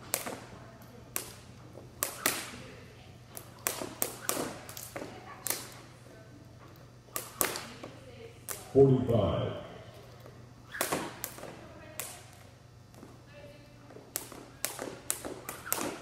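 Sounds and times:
jump rope slapping the floor: 0.0 - 0.5, 1.1 - 2.6, 3.3 - 5.9, 7.1 - 8.7, 10.0 - 13.2, 13.8 - 16.0.

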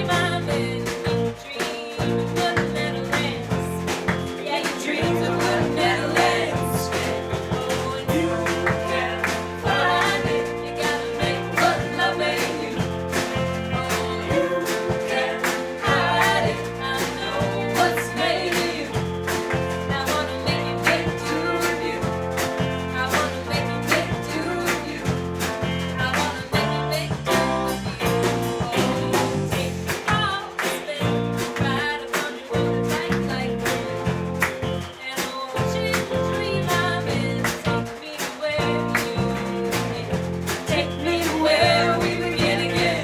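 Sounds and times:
keyboard: 0.0 - 35.1
drum kit beat: 0.0 - 43.0
electric guitars: 0.0 - 43.0
person singing: 4.4 - 19.0, 26.0 - 33.9.

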